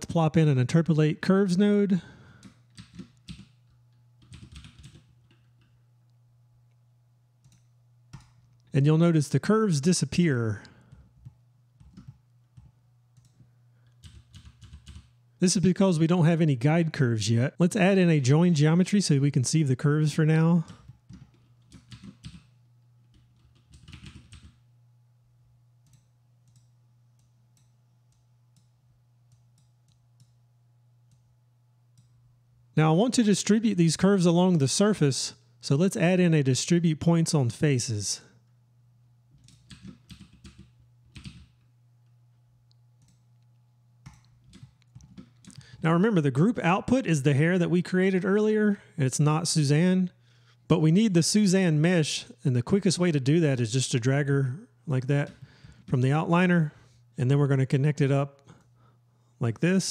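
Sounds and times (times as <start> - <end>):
steady low hum: 0.0 - 59.9
keyboard typing: 2.4 - 5.8, 7.4 - 8.6, 10.9 - 15.2, 20.7 - 22.5, 23.1 - 24.6, 39.4 - 41.7, 44.0 - 45.7.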